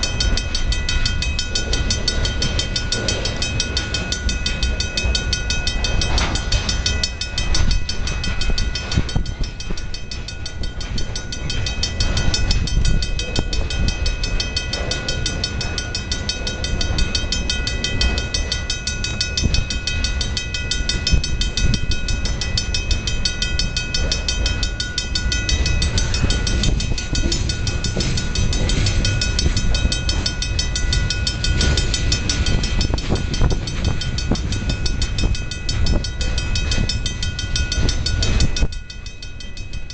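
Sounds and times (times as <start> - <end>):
freight train rolling past: 0.0 - 39.9
high ringing tone: 0.0 - 39.9
train wheels clacking on rails: 0.0 - 39.9.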